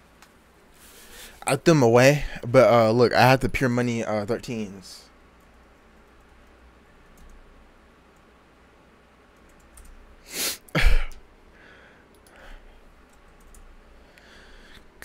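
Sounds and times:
computer keyboard clicks: 7.0s - 7.4s, 9.4s - 10.0s, 13.1s - 13.7s
burst of breath: 11.6s - 12.7s.

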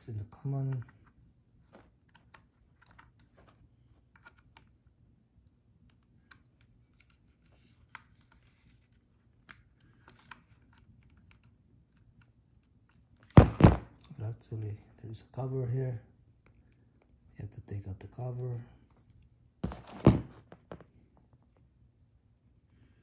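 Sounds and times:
loud thump: 13.4s - 13.9s.

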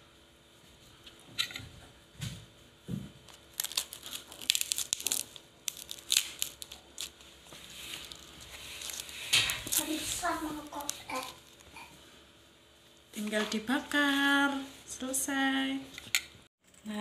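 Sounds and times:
banana leaf crackling and rustling: 3.3s - 11.8s.

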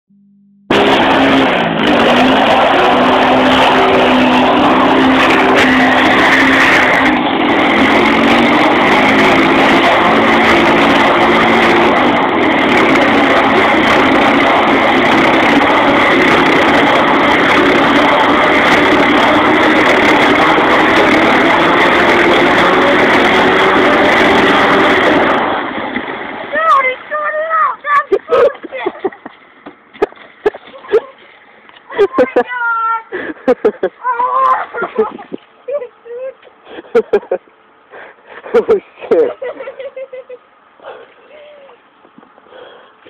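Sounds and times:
atv engine at high revs: 0.7s - 27.1s
wheels spinning throwing water: 0.7s - 37.5s.

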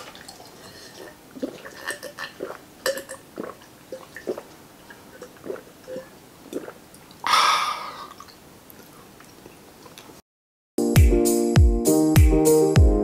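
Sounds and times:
person swallowing a drink: 0.0s - 10.2s.

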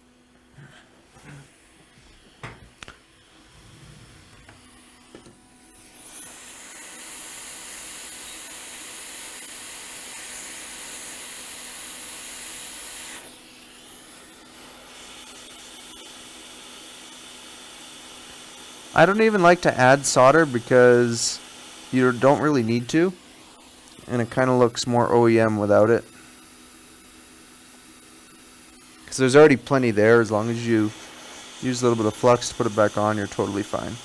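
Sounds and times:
hot air station hissing: 5.8s - 17.3s, 18.0s - 26.8s, 28.0s - 34.0s.

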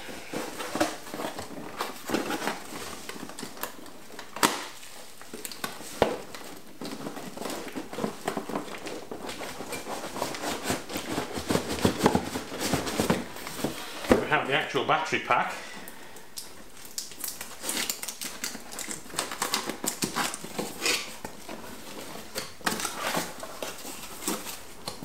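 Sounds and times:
packing material rustling: 0.0s - 14.6s, 15.8s - 25.0s.

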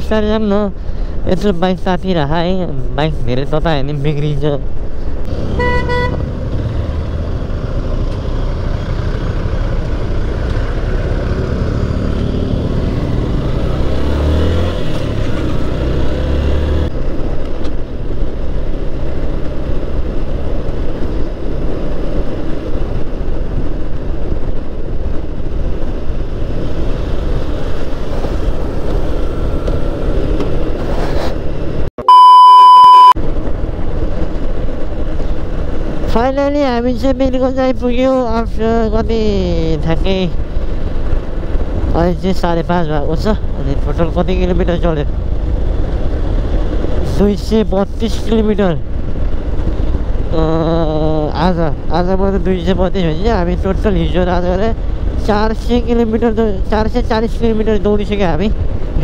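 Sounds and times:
wind and road rush: 0.0s - 59.0s
loud electronic beep: 32.0s - 33.2s.

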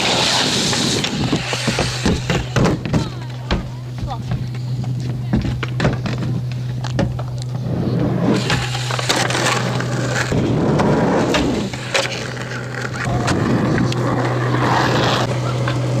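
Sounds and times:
skateboard wheels rolling: 0.0s - 16.0s
steady low hum: 0.4s - 16.0s
skateboard knocking on ramp: 1.0s - 7.4s.

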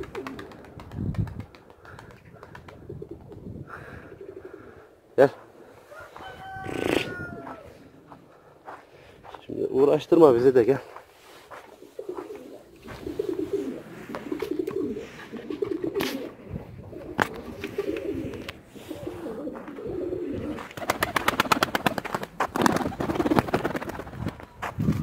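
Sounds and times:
pigeons cooing: 0.0s - 0.8s, 1.4s - 8.2s, 11.7s - 24.0s.

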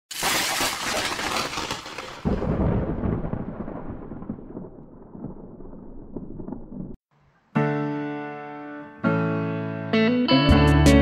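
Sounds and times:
thunderclap: 2.2s - 7.0s
low rolling thunder rumble: 2.3s - 7.0s.

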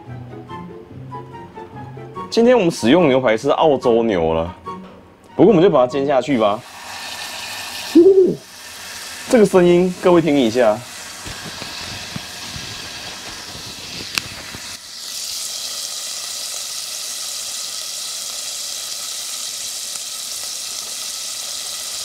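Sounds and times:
steak sizzling in a pan: 6.2s - 22.0s.

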